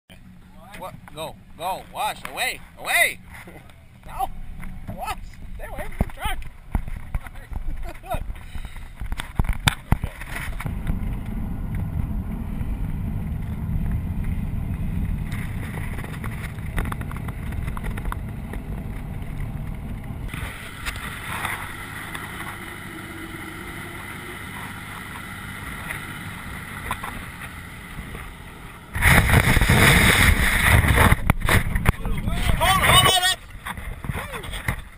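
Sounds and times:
vehicle rumble: 0.1 - 34.9
wind rushing over microphone: 28.9 - 33.0.

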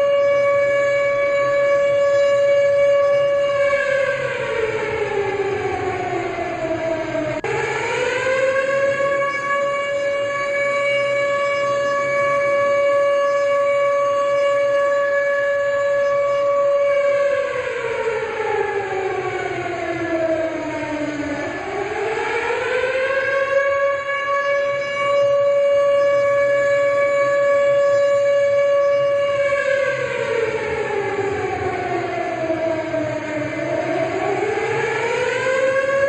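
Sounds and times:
siren wailing: 0.0 - 36.0.

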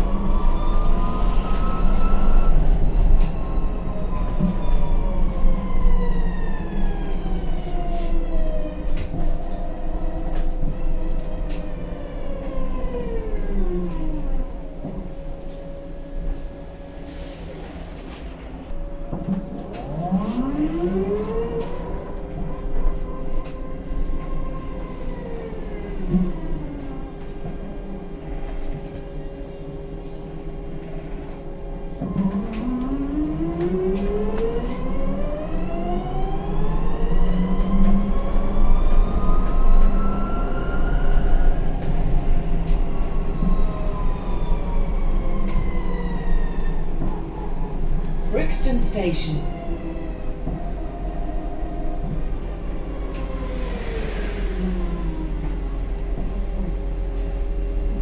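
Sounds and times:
electric bus motor whine: 49.4 - 58.0.

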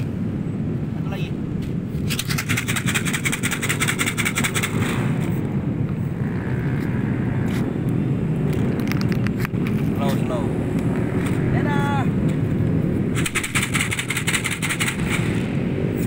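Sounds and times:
traffic rumble: 0.0 - 16.0
scattered clicks: 1.6 - 5.0, 8.4 - 10.0, 12.2 - 15.5.

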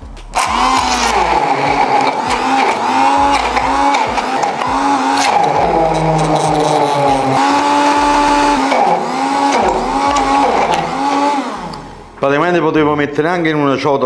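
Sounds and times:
blender motor running: 0.4 - 12.2.

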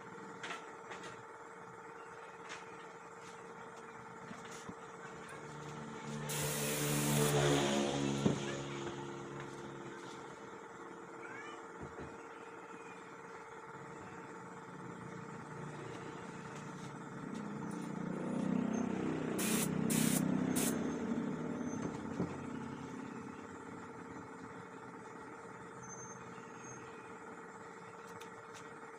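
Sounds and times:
steady mechanical hum: 0.0 - 28.9
air spray gun hissing: 6.3 - 7.5, 19.4 - 20.8.

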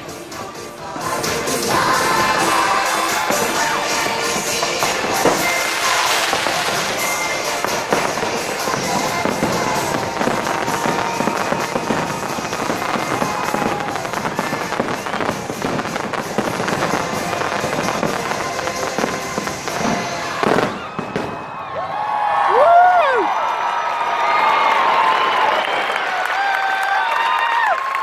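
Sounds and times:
music soundtrack: 0.0 - 20.8
fireworks bangs and crackles: 0.0 - 21.8.

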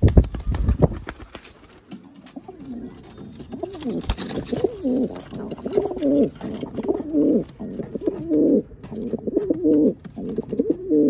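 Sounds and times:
pigeon wing flaps: 0.0 - 2.8, 3.4 - 6.1
pigeon cooing: 2.4 - 11.0.

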